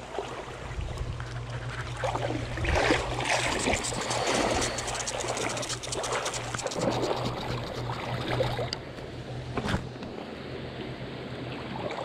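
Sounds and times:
creek water trickling: 0.0 - 8.9.

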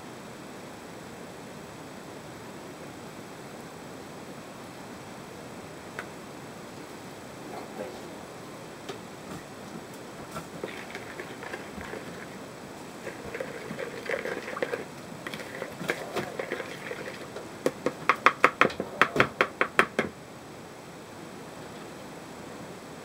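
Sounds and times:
spoon stirring liquid in bowl: 10.3 - 18.6.

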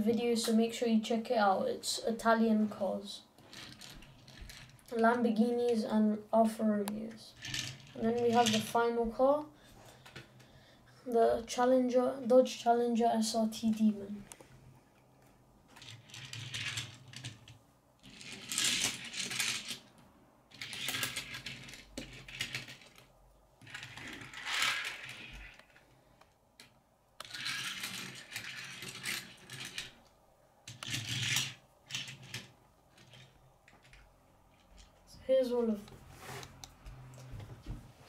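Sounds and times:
toy cars rolling on wooden table: 3.4 - 5.9, 7.0 - 9.0, 15.7 - 26.0, 26.6 - 30.0, 30.6 - 35.1.

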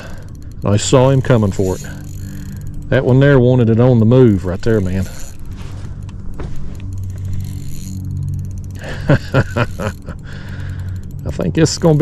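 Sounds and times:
fishing reel whirring: 0.0 - 12.0.

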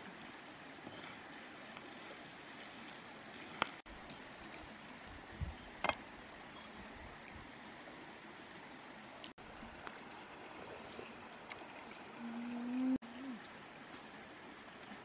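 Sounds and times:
pan simmering hiss: 0.0 - 3.8
stream water running: 0.0 - 15.0.

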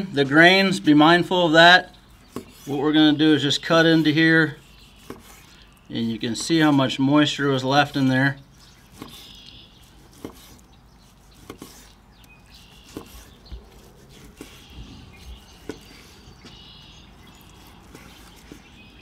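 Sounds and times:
knife slicing meat: 3.8 - 5.6, 8.8 - 16.2.

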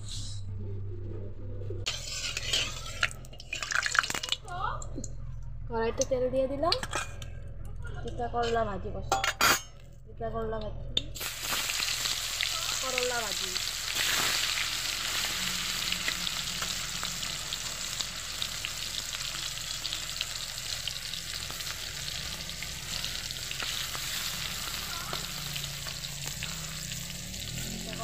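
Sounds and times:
vegetables frying in hot oil: 11.2 - 28.0.

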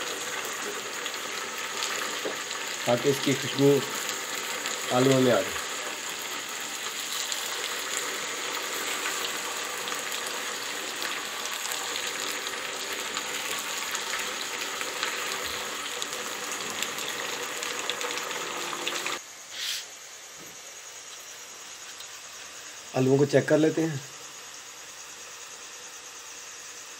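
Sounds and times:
potatoes frying in hot oil: 0.0 - 19.2.

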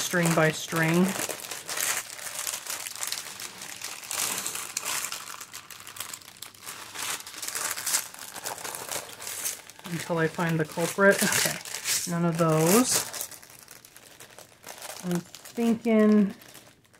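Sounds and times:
thin plastic crinkling: 0.0 - 16.9.

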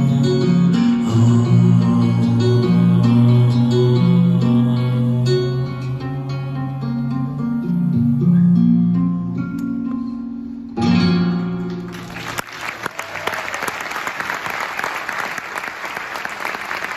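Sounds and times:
acoustic guitar playing: 0.0 - 12.1
audience applause: 11.9 - 16.9.

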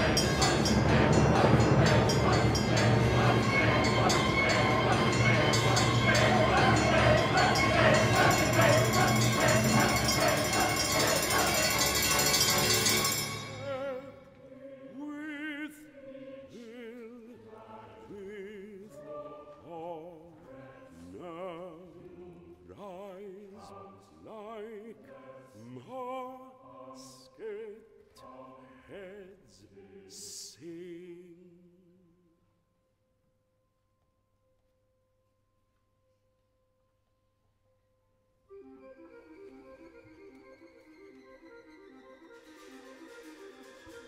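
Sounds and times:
baritone and choir singing: 0.0 - 31.8.

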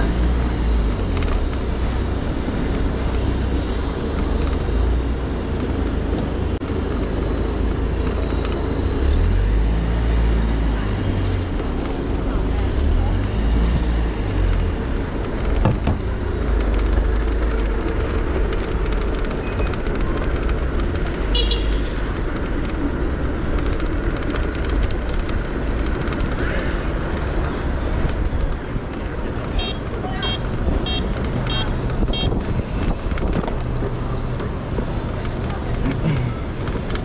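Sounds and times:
city traffic and road rumble: 0.0 - 37.0
car horn beeps: 21.3 - 21.9, 29.6 - 32.4.

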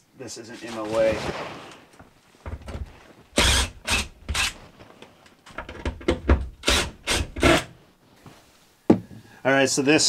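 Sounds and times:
cordless drill bursts: 3.4 - 4.6
screws rasping against wood: 3.4 - 4.6.

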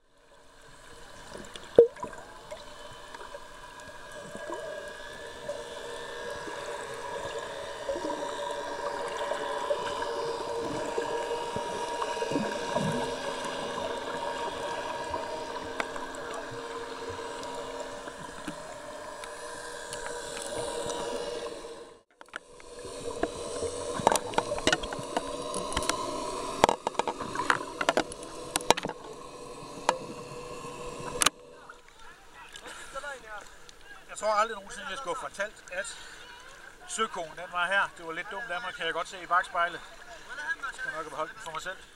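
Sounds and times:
underwater hum with held tones: 0.0 - 41.9
watery hiss: 0.6 - 33.7.

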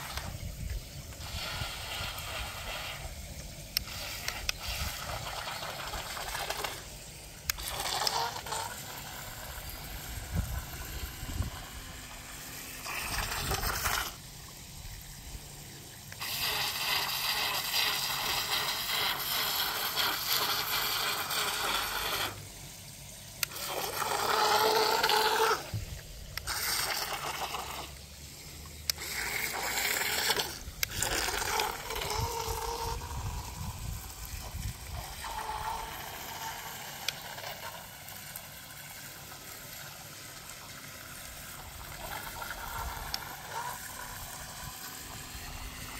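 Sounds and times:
electric motors whining: 0.0 - 15.5, 23.4 - 28.0, 28.7 - 38.5
propellers churning water: 0.0 - 45.9.

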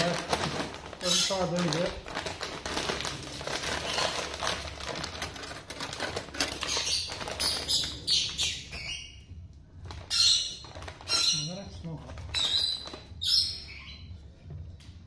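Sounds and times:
chip bag crinkling: 0.0 - 8.0, 9.8 - 13.1.

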